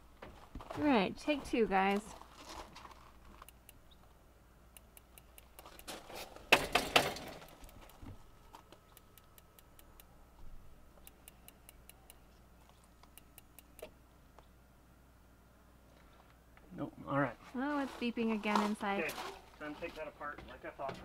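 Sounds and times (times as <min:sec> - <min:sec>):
handling rustle: 0:00.2 - 0:03.5, 0:17.4 - 0:20.0.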